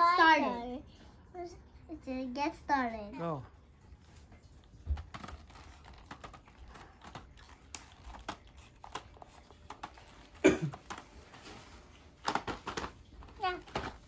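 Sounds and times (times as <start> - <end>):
plastic crackling: 4.6 - 14.0.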